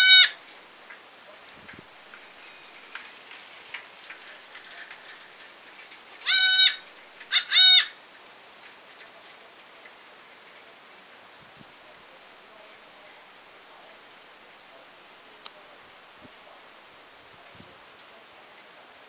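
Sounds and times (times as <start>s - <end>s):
baby goat bleating: 0.0s - 0.4s, 6.2s - 8.0s.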